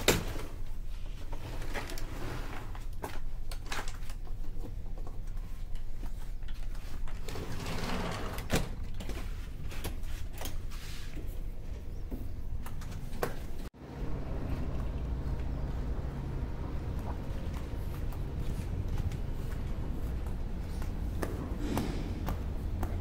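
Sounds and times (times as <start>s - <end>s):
ferry engines droning: 13.8s - 23.0s.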